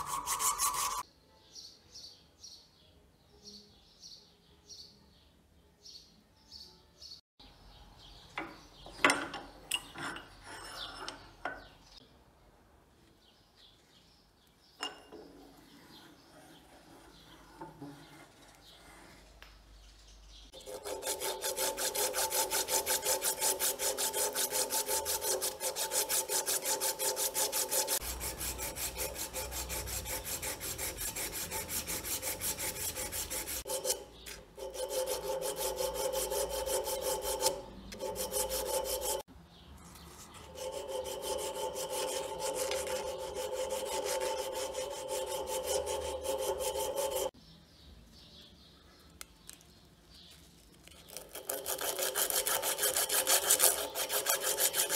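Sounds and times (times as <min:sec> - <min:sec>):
abrasive cloth rasping on metal rod: 0:00.0 - 0:01.0, 0:20.6 - 0:39.3, 0:40.3 - 0:47.4, 0:51.1 - 0:54.9.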